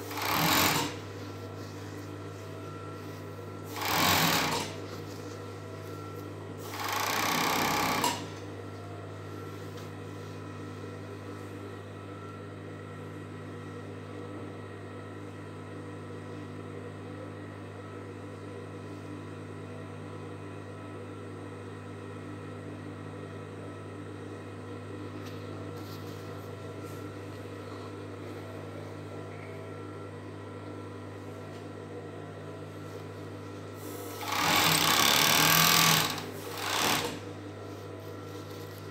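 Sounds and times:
overlock machine stitching: 0:00.0 - 0:01.1, 0:03.7 - 0:04.8, 0:06.6 - 0:08.4, 0:34.1 - 0:37.4
sewing machine motor humming: 0:00.0 - 0:08.5, 0:33.8 - 0:37.5.

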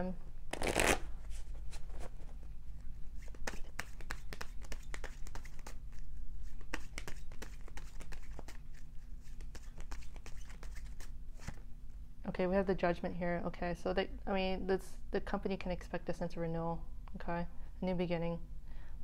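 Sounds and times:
cards being shuffled: 0:00.5 - 0:02.2, 0:03.1 - 0:11.6.

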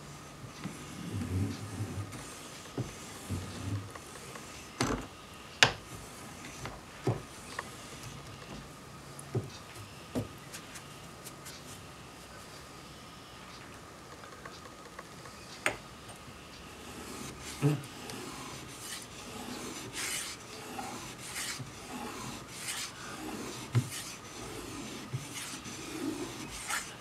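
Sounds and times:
faint high whine: 0:07.4 - 0:14.5.

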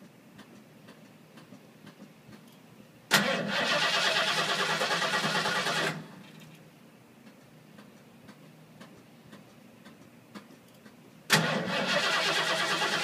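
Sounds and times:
truck engine cranking on starter: 0:03.1 - 0:06.2, 0:11.3 - 0:13.0.

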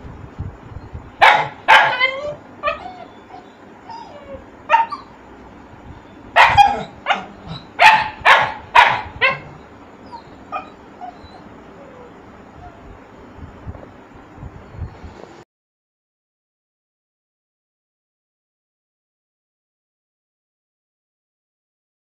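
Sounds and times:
small puppy barking: 0:01.2 - 0:05.2, 0:06.3 - 0:12.8.

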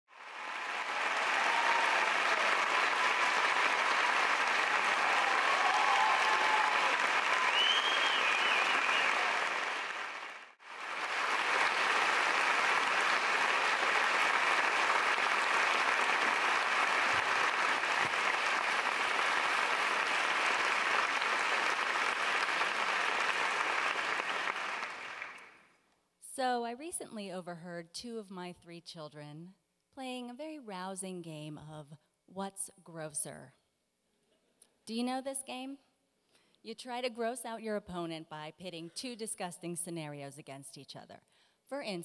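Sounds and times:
large audience applauding: 0:00.1 - 0:25.7.

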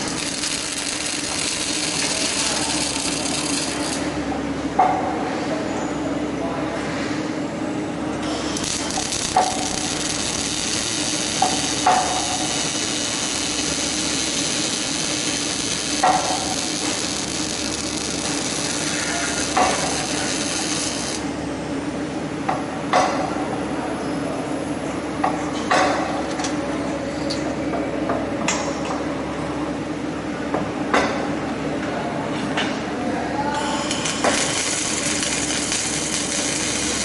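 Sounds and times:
welding arc crackling hiss: 0:00.0 - 0:04.2, 0:08.2 - 0:21.3, 0:33.5 - 0:37.0
steady machine hum: 0:00.0 - 0:25.2, 0:32.8 - 0:37.0.

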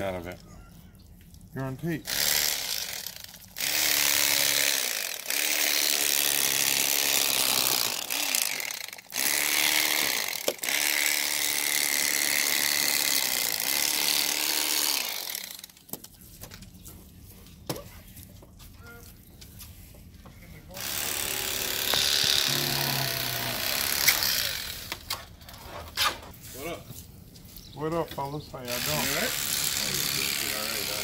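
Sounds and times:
electric knife buzzing: 0:02.1 - 0:15.7, 0:20.8 - 0:25.2, 0:28.7 - 0:31.0.

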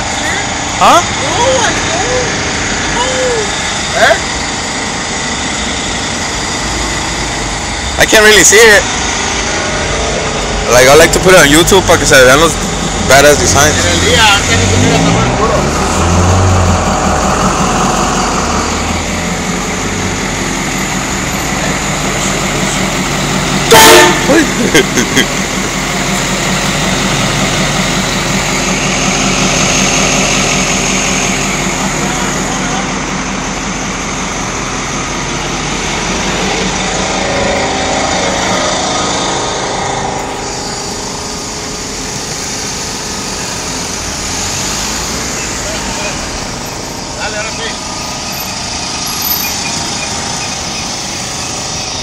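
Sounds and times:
truck engine running: 0:00.0 - 0:52.0
low hum: 0:16.6 - 0:44.5.

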